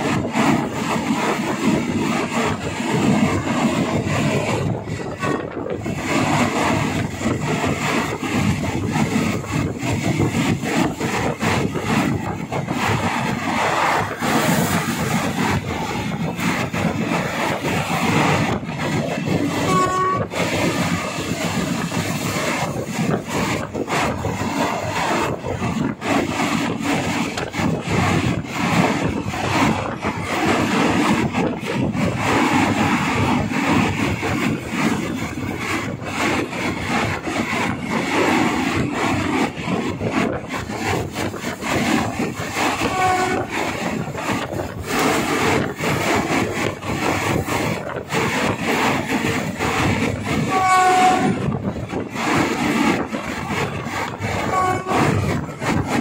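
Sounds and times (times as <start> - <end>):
train wheels clicking over rail joints: 0.0 - 56.0
train horn: 19.6 - 20.4, 42.8 - 43.6, 50.5 - 51.6, 54.4 - 55.3.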